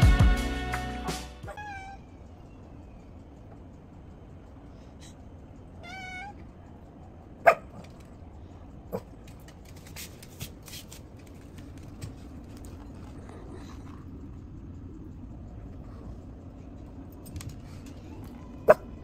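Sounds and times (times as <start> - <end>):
dog whining: 1.4 - 2.6, 5.8 - 6.4
light clicks and taps: 7.8 - 14.3.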